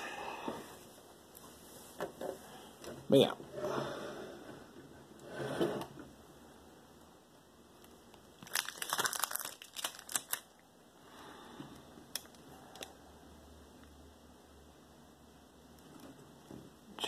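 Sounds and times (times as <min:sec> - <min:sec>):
crinkly rustling: 0:08.4 - 0:10.6.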